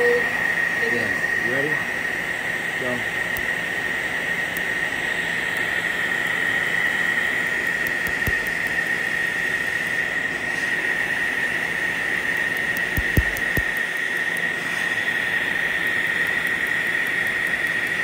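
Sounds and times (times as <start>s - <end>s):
quick high ticks: 12.4s - 14.4s.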